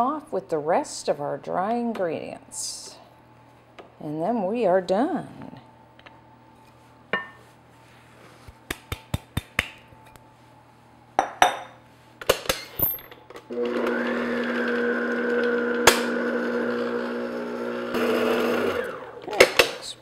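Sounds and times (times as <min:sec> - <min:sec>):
stand mixer motor hum: 0:13.5 - 0:19.2.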